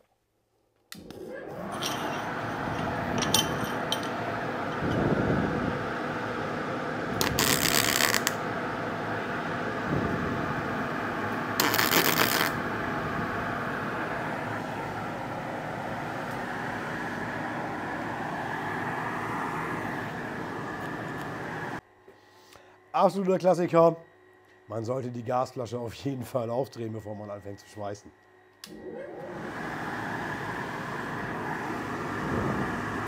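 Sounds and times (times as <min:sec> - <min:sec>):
fan hum: 0:00.9 - 0:33.0
welding arc crackling: 0:07.1 - 0:08.4, 0:11.5 - 0:12.6.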